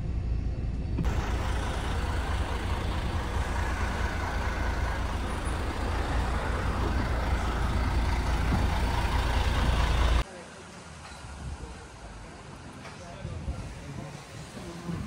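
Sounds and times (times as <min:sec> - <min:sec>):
vehicle engine rumbling: 0:00.0 - 0:10.3
road noise: 0:00.0 - 0:15.0.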